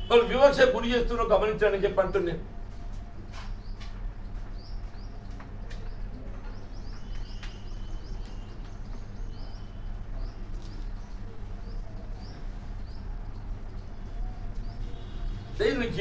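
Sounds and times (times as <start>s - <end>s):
steady low hum: 0.0s - 16.0s
small bird chirping: 4.5s - 15.3s.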